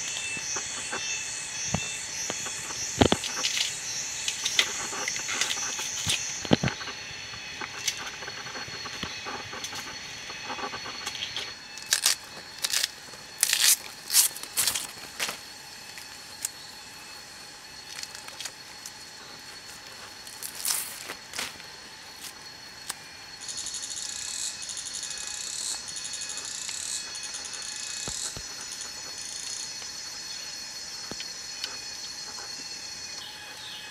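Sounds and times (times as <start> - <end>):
insects whining: 0.0 - 33.9
pulsing insect call: 0.0 - 33.9
plant stems snapping and tearing: 11.8 - 15.0.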